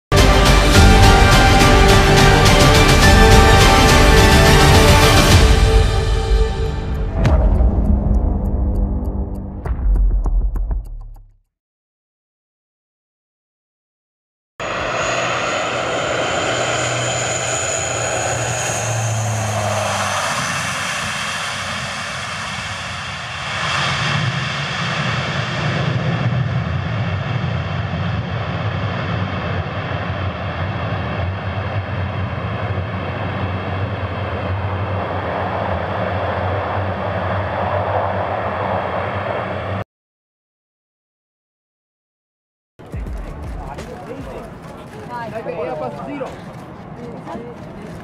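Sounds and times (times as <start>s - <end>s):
propeller engine drone: 0.1s - 9.7s, 14.6s - 39.8s
turbine whine: 14.6s - 39.8s.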